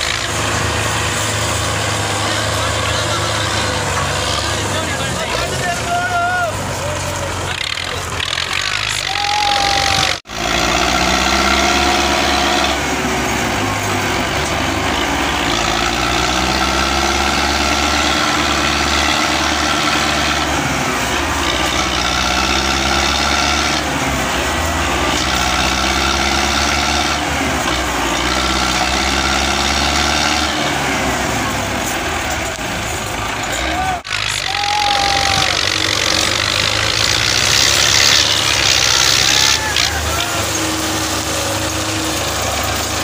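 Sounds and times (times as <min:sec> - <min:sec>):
tractor diesel engine under load: 0:00.0 - 0:43.0.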